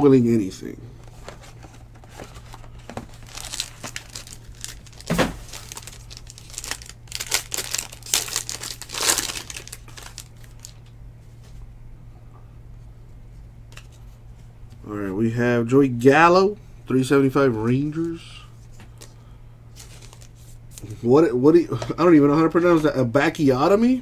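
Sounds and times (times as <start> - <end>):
plastic wrapper crinkling and tearing: 2.0 - 10.9, 19.8 - 20.4.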